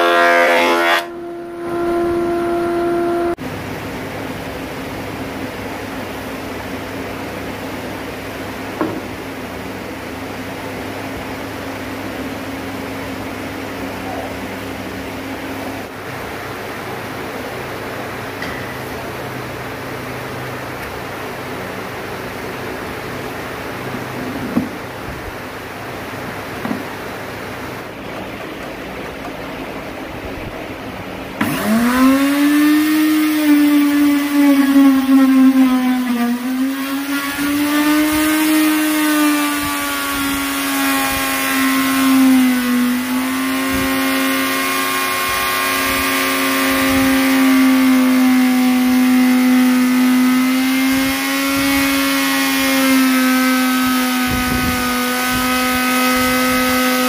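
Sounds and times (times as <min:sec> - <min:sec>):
electric router cutting wood: 0:00.0 - 0:03.4, 0:31.4 - 0:57.0.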